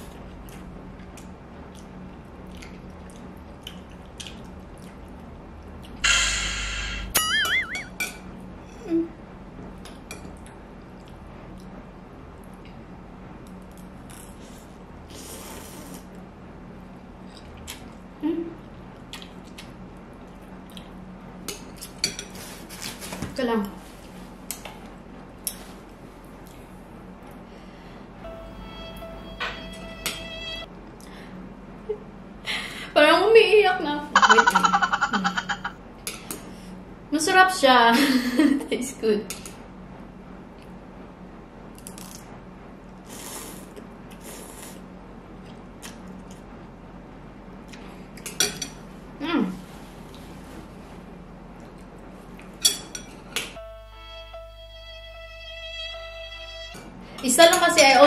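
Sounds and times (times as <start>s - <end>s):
chewing and lip-smacking: 0.4s - 6.0s
slurping noodles: 15.1s - 16.1s.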